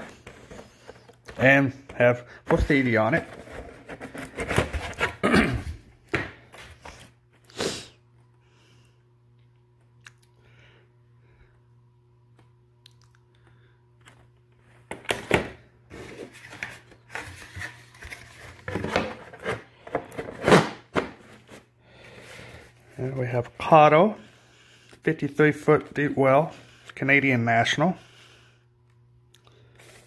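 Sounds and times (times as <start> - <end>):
plastic and cardboard rustling: 0.0 - 7.1, 15.9 - 22.7
faint steady hum: 0.0 - 30.0.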